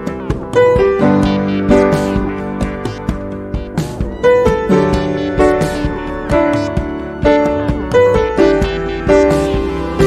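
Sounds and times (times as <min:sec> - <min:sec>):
instrumental music with struck notes: 0:00.0 - 0:10.0.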